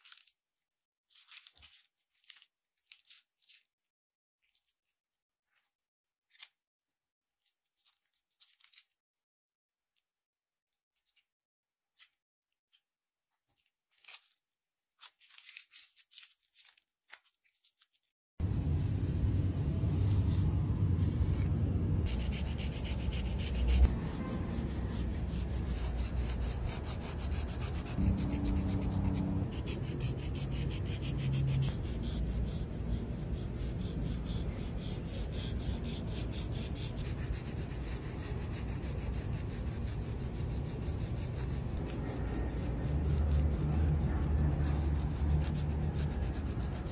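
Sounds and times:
chalk scraping on concrete: 19.8s - 46.9s.

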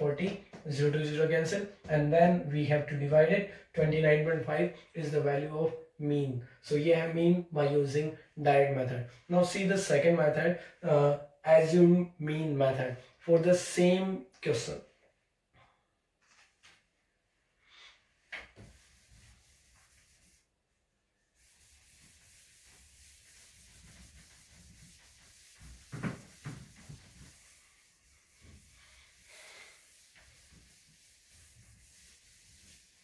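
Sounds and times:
eraser scrubbing whiteboard: 18.4s - 20.6s, 21.2s - 33.0s.

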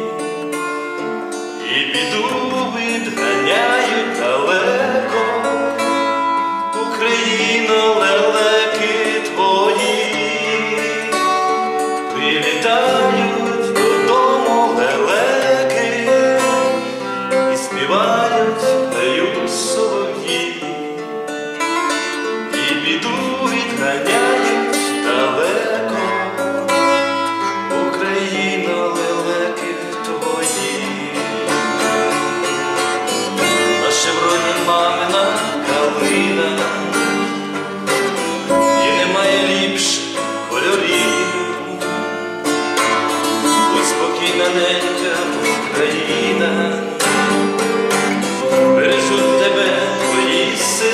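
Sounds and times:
plucked lute melody: 0.0s - 50.9s
held accompanying tones: 30.4s - 50.9s.

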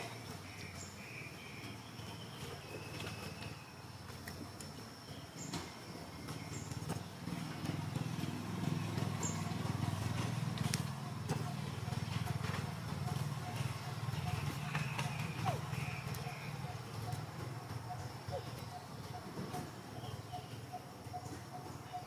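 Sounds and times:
low rough engine drone: 0.0s - 22.0s.

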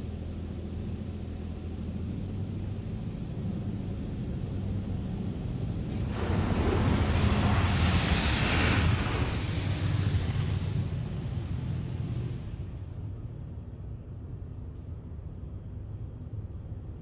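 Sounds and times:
water spray hitting car: 5.9s - 11.6s.

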